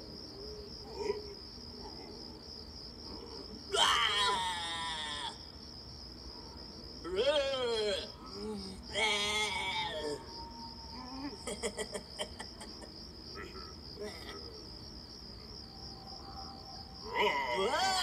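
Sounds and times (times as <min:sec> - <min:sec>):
cricket chirping: 0:00.0 - 0:18.0
wavering cartoonish voice: 0:07.0 - 0:10.3, 0:17.1 - 0:18.0.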